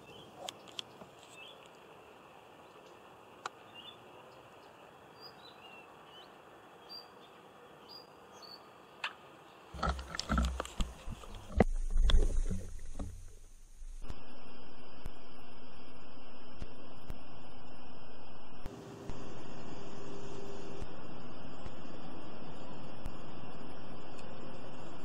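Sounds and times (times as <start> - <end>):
faint riverside ambience: 0.0 - 25.0
bird chirps: 3.7 - 8.7
water sloshing and knocks: 9.8 - 13.5.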